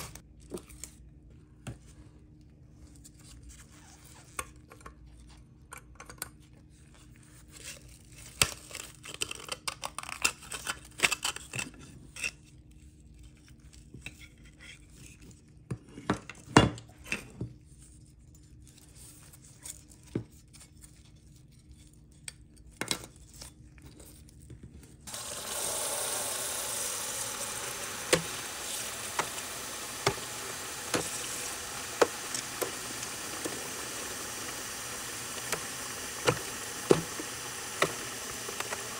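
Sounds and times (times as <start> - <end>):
tap water running into tub: 25.1 - 38.9.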